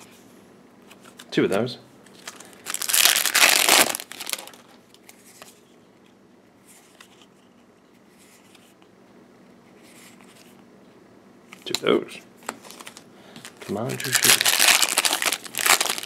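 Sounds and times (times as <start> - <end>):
cards rustling: 0.9 - 5.7, 11.6 - 16.0
foil wrapper crinkling: 2.1 - 4.7, 12.6 - 16.0.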